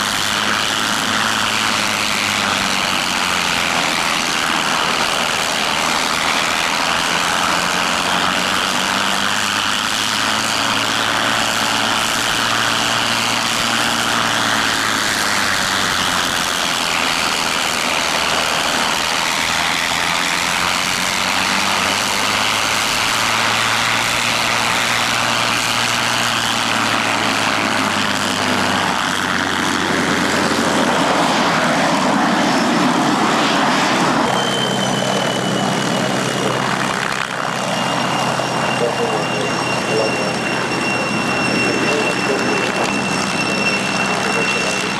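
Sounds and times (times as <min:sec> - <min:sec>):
propeller aircraft engine idling: 0:00.0 - 0:44.9.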